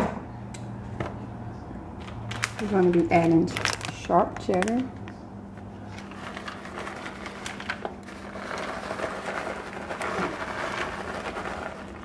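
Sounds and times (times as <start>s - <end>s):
steady low hum: 0.0s - 12.0s
plastic bag crinkling: 2.0s - 5.2s, 5.8s - 12.0s.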